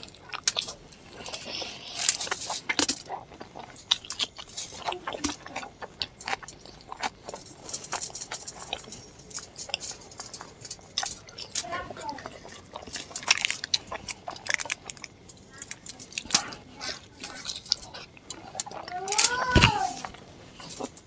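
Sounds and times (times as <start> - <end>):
wet chewing and lip-smacking: 0.0 - 21.0.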